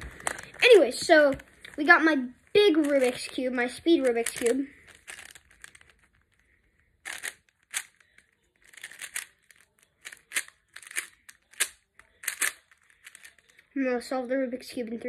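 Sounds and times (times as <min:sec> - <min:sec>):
plastic puzzle cube clicking: 0:02.8 - 0:03.3, 0:04.0 - 0:06.2, 0:07.0 - 0:13.6.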